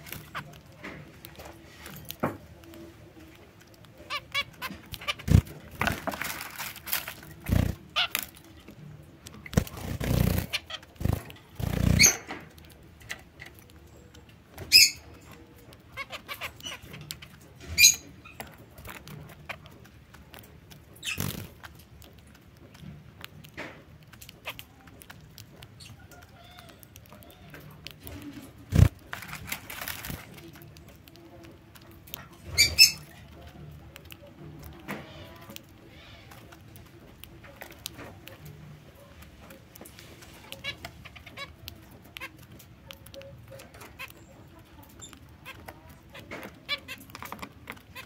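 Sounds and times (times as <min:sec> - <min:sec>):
birds pecking seeds: 0:00.0 - 0:48.0
rustling in seed: 0:05.3 - 0:08.3, 0:28.7 - 0:30.6.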